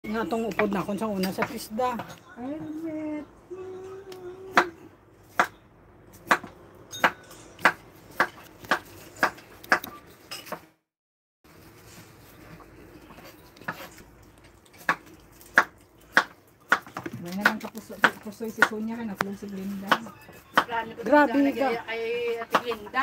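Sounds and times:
knife chopping on cutting board: 0:04.5 - 0:09.9, 0:14.8 - 0:18.8.

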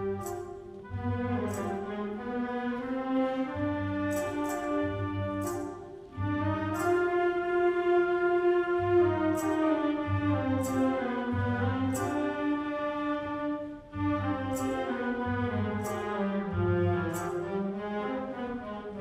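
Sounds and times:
wind band playing: 0:00.0 - 0:19.0
bright percussion strikes: 0:03.7 - 0:07.7, 0:08.9 - 0:12.6, 0:14.3 - 0:17.7.

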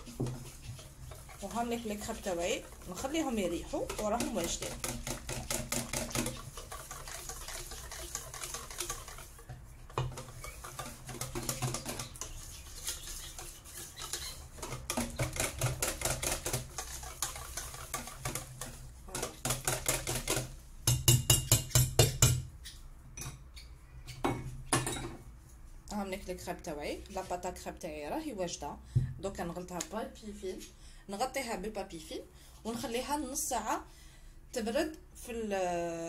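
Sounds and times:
whisk beating batter in metal bowl: 0:00.0 - 0:22.4.

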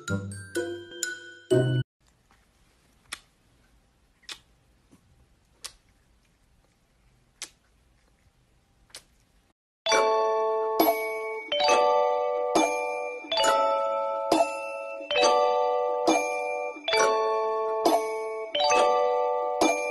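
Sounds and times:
bell-like chiming tones: 0:09.9 - 0:19.9.

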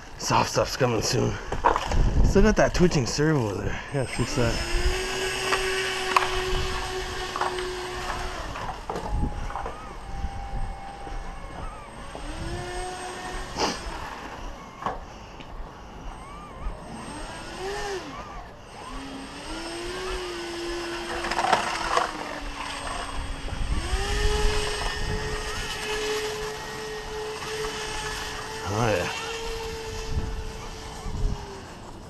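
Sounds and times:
electric motor and propeller whining: 0:00.0 - 0:32.0
wind noise: 0:01.6 - 0:14.1, 0:22.4 - 0:28.3, 0:29.3 - 0:31.7.

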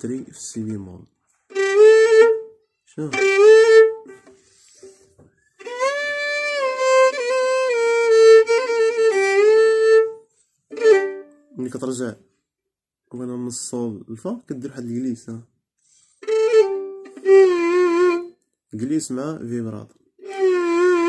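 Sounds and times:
violin bowed with ornaments: 0:01.5 - 0:11.4, 0:16.2 - 0:18.4, 0:20.2 - 0:21.0.

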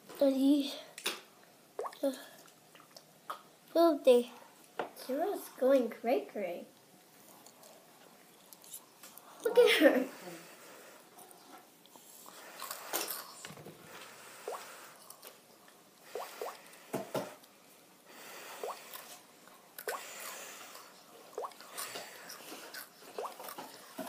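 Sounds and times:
noodles being slurped: 0:18.6 - 0:24.0.

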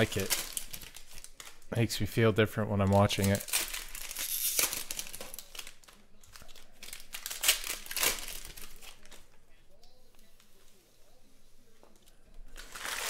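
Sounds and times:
foil wrappers crinkling and tearing: 0:00.0 - 0:01.8, 0:02.8 - 0:09.3, 0:12.5 - 0:13.0.

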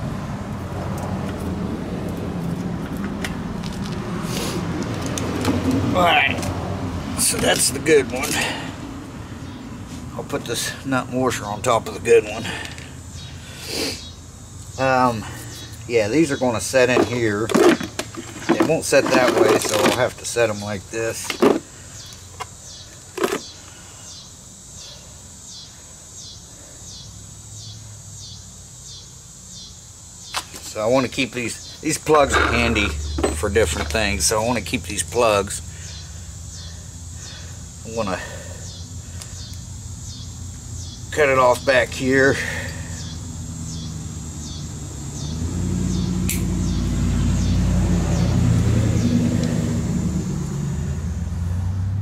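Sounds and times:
vehicle engine rumbling: 0:00.0 - 0:24.0, 0:30.1 - 0:52.0
insects calling: 0:00.0 - 0:52.0
sharp click: 0:46.3 - 0:46.5.

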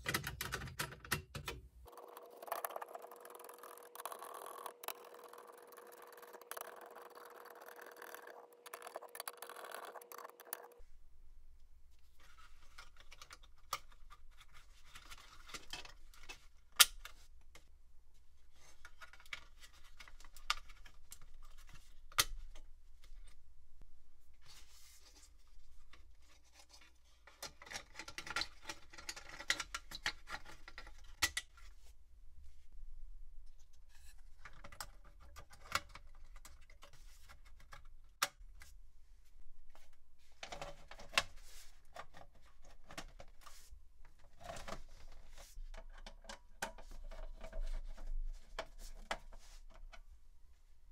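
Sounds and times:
memory modules clicking into slots: 0:00.0 - 0:10.8.

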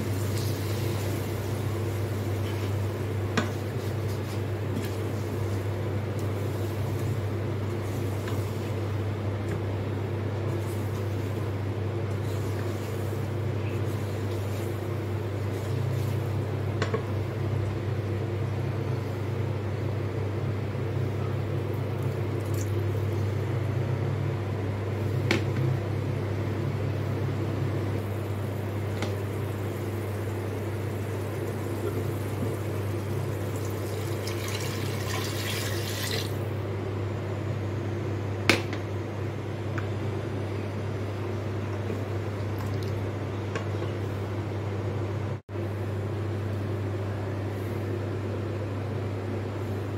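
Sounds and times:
low electrical hum: 0:00.0 - 0:49.9
water pouring into metal pot: 0:33.5 - 0:36.3.

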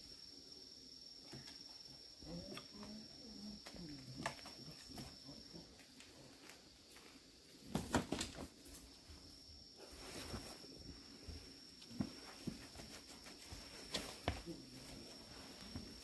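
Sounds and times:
faint high-pitched whine: 0:00.0 - 0:16.0
kittens scuffling on concrete: 0:03.5 - 0:16.0.

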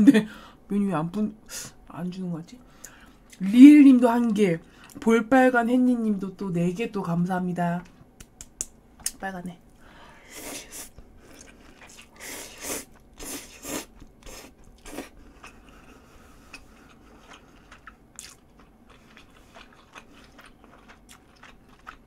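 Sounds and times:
slurping noodles: 0:10.3 - 0:15.6
wet chewing clicks: 0:16.5 - 0:22.0.

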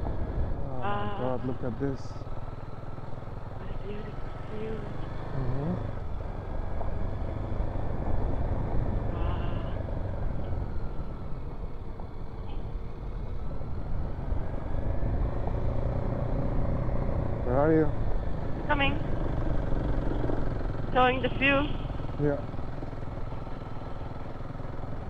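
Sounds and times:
motorcycle engine running: 0:00.0 - 0:25.0
wind and road noise: 0:00.0 - 0:25.0.

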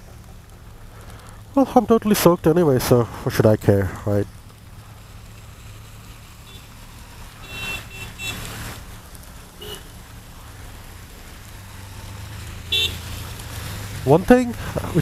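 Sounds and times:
car horn beeps: 0:07.4 - 0:08.4, 0:09.6 - 0:09.9, 0:12.7 - 0:13.0.

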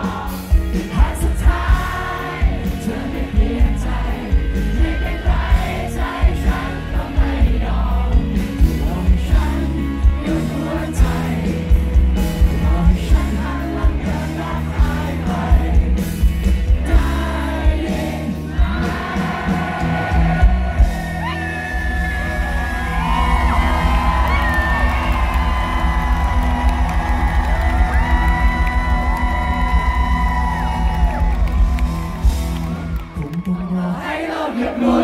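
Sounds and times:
man singing: 0:00.0 - 0:20.4
steady drum beat: 0:00.0 - 0:33.0
heavy bass: 0:00.0 - 0:33.4
live band playing pop song: 0:00.0 - 0:33.7.

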